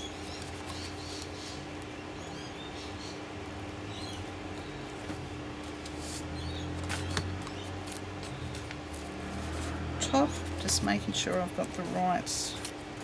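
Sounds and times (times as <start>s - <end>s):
steady low hum: 0.0s - 13.0s
paper handling: 4.9s - 13.0s.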